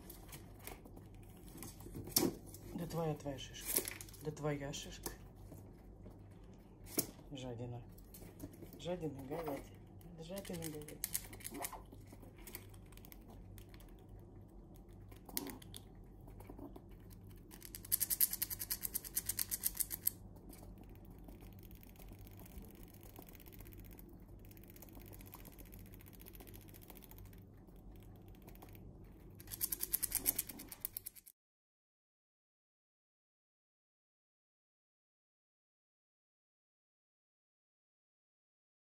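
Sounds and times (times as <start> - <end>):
squirrel cracking nut shells: 7.9 - 31.3.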